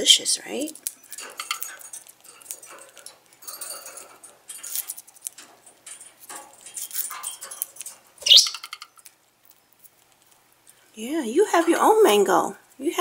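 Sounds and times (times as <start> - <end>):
budgerigar rising chirp: 8.2 - 8.7.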